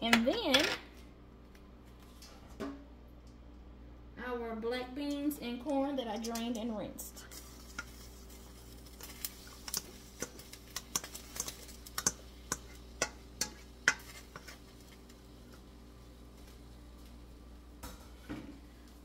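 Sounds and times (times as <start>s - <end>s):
metal utensils tapping cooking pot: 9.7s - 14.5s.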